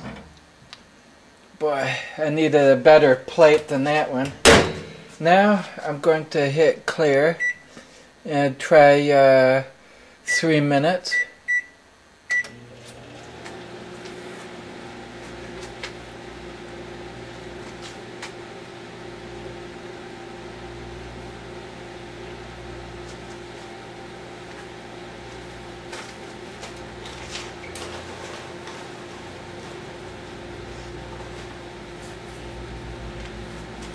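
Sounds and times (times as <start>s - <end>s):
microwave oven humming: 0.0s - 5.5s, 11.5s - 33.9s
microwave keypad beeping: 7.4s - 7.7s, 11.1s - 11.7s, 12.3s - 12.6s.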